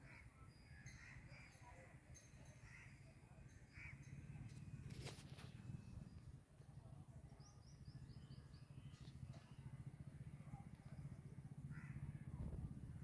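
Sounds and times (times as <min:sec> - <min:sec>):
faint low rumble: 0:04.1 - 0:13.0.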